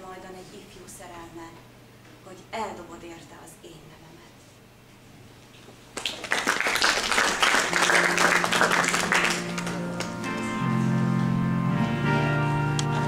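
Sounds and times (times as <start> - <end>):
audience applauding: 6.0 - 10.5
keyboard sustained notes: 7.6 - 13.0
keyboard and acoustic guitar music: 7.7 - 13.0.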